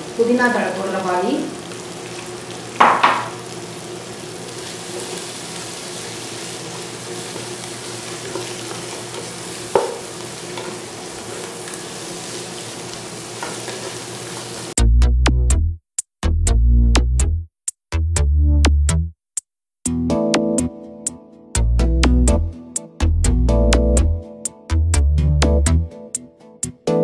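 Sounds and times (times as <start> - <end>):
food sizzling in a pot: 0.0 - 14.8
wooden spatula knocking and scraping: 9.1 - 10.0.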